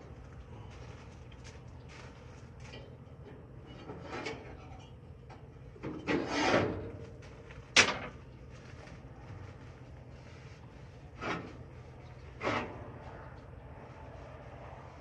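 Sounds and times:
skillet rubbing and scraping: 0:06.0 - 0:06.9, 0:10.1 - 0:15.0.

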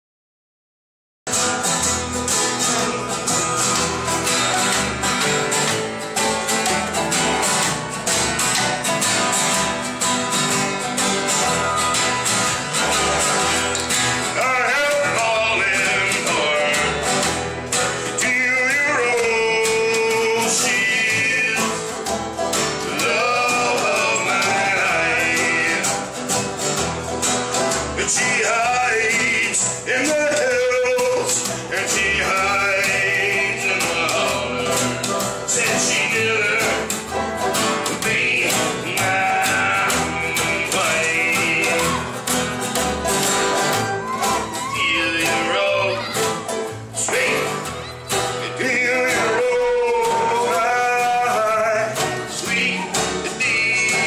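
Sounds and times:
acoustic guitars: 0:01.3 - 0:54.0
upright bass: 0:01.3 - 0:54.0
man singing: 0:02.3 - 0:04.6, 0:14.1 - 0:22.1, 0:22.7 - 0:26.4, 0:27.8 - 0:42.5, 0:44.5 - 0:54.0.

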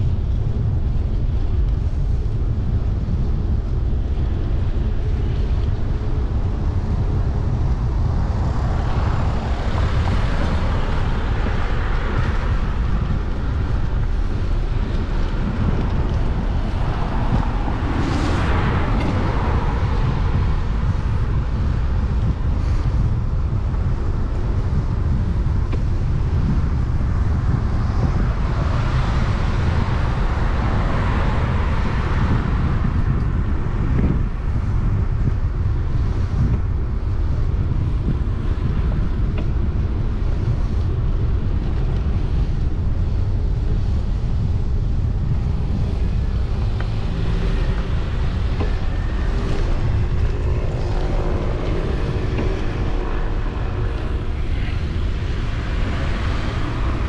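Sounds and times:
engine hum: 0:00.0 - 0:57.0
wind buffeting microphone: 0:00.0 - 0:57.0
motor vehicle passing: 0:45.5 - 0:57.0.

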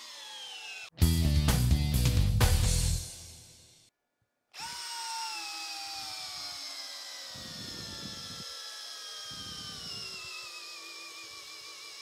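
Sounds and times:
drill bit chewing through wood: 0:00.0 - 0:00.9, 0:04.6 - 0:12.0
power drill motor whine: 0:00.0 - 0:00.9, 0:04.6 - 0:12.0.

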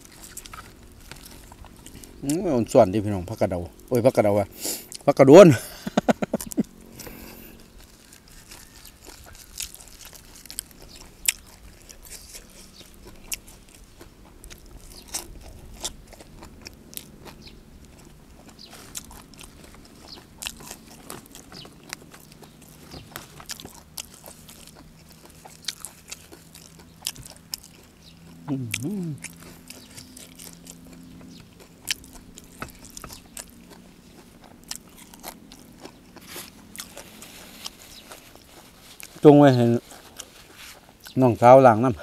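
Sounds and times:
person chewing crunchy greens: 0:00.0 - 0:42.0.

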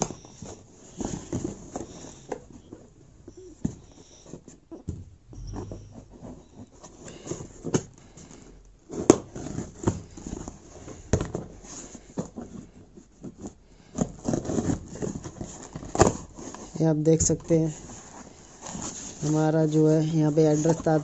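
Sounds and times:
packing tape clicks and knocks: 0:06.9 - 0:16.6
cardboard box scraping and rustling: 0:17.4 - 0:21.0.

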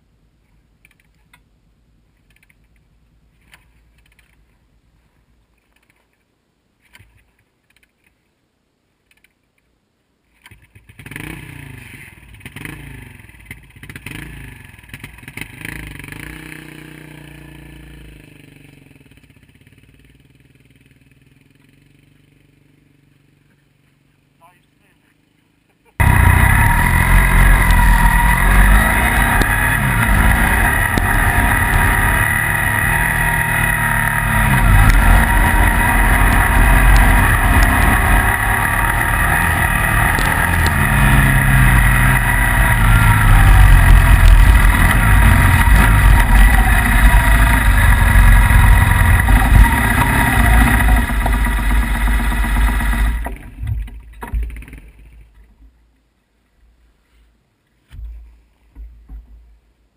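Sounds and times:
motorcycle engine revving: 0:10.8 - 0:23.8, 0:25.2 - 0:55.2.

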